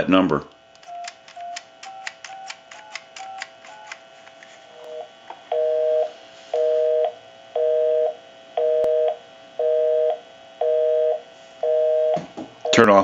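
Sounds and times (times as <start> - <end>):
sharp click: 0.3 - 4.0
telephone busy signal beeps: 0.9 - 4.0, 5.5 - 12.9.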